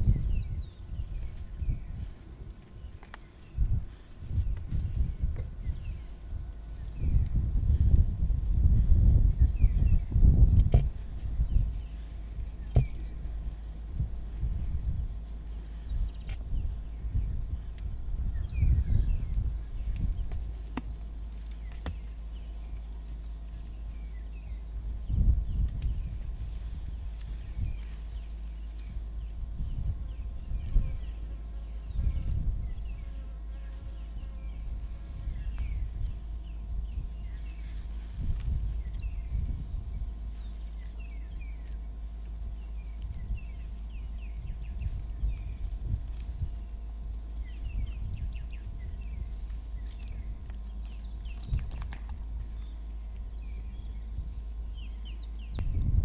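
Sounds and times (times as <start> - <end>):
low rumbles: 0.0 - 33.2
high-pitched insect drone: 0.0 - 46.0.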